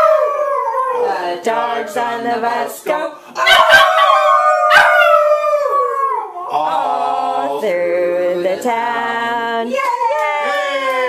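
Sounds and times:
people singing long notes: 1.0s - 3.6s
small dog howling: 3.4s - 6.5s.

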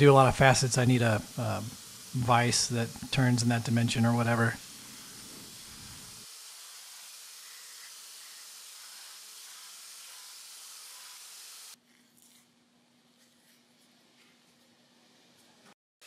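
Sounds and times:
belt grinder hissing: 0.0s - 11.8s.

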